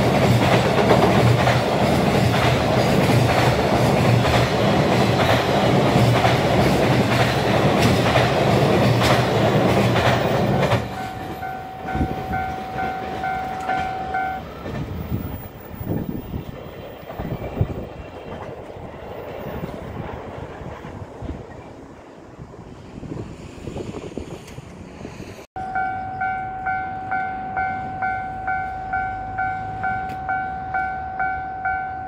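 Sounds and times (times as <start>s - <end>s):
train wheels clattering over joints: 0.0s - 20.5s
pulsing ringing tone: 10.8s - 14.5s, 25.6s - 32.0s.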